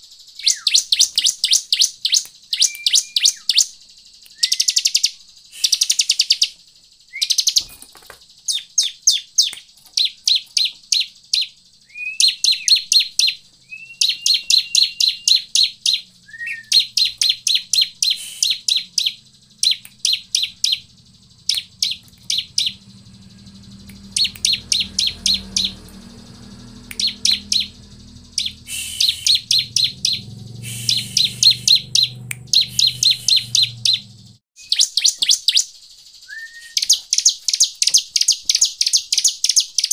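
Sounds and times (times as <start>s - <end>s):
bird singing high chirps: 0.0s - 39.9s
low hum: 13.6s - 34.4s.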